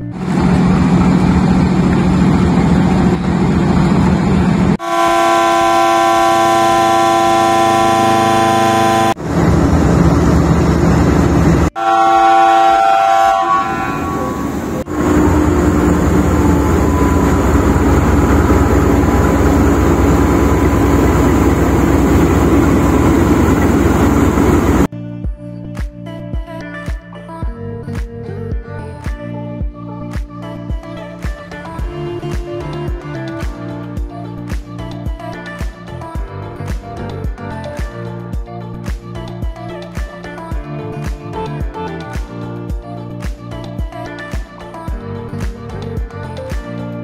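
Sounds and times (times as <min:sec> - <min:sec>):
diesel locomotive engine rumbling: 0:00.0 - 0:24.9
locomotive air horn chord: 0:04.8 - 0:09.2, 0:11.7 - 0:24.9.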